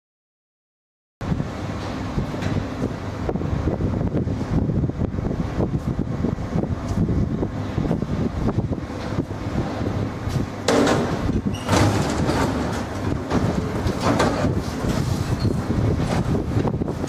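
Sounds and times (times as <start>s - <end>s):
metro station rumble: 1.2s - 17.0s
metal turnstile knocking and clanking: 10.6s - 14.6s.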